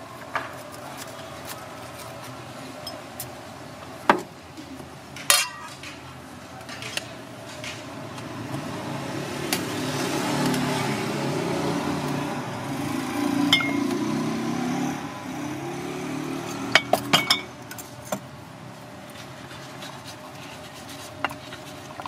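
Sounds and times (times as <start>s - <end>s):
vehicle engine passing: 8.3s - 17.6s
objects clinking on china plate: 16.8s - 17.5s.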